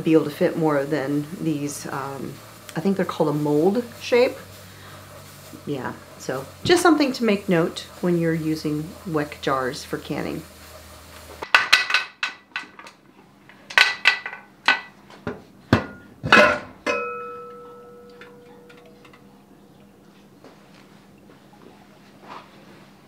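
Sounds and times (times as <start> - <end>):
metallic ringing tone: 16.9 - 19.5.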